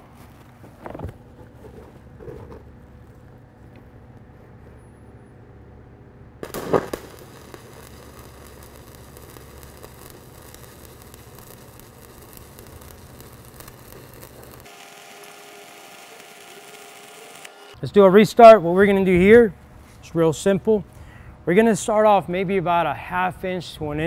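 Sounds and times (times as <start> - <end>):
low hum: 0.0 - 17.8
welding arc crackling: 6.4 - 17.8
welding arc striking pop: 6.4 - 17.8.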